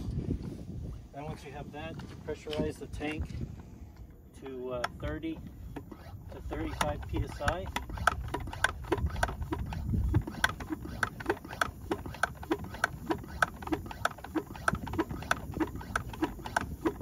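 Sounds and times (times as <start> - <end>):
hand pump clicking and squeaking: 4.4 - 17.0.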